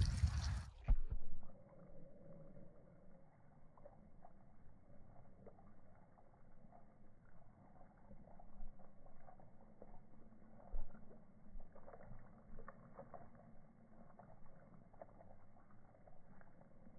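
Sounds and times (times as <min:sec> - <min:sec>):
dog lapping water: 0:00.0 - 0:00.9, 0:03.7 - 0:16.9
hose water splashing: 0:00.0 - 0:01.1.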